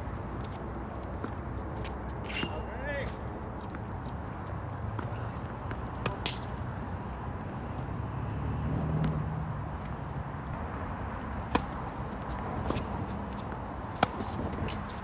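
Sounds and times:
tennis balls struck with rackets: 11.4s - 11.8s, 12.6s - 15.0s.

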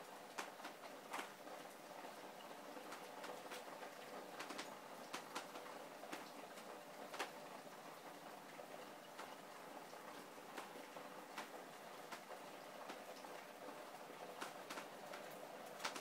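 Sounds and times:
raindrops ticking: 0.1s - 16.0s.

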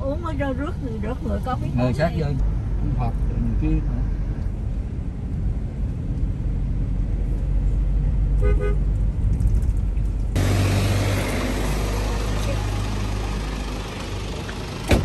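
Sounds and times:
traffic engine rumble: 0.0s - 15.0s
vehicle horn toot: 8.4s - 8.8s
loud rushing noise: 10.4s - 13.6s.

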